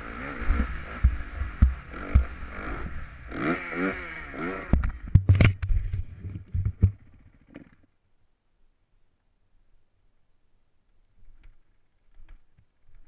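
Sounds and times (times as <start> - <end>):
dirt bike engine revving: 0.0 - 5.1
heavy thumps and knocks: 1.0 - 2.4, 4.7 - 7.1.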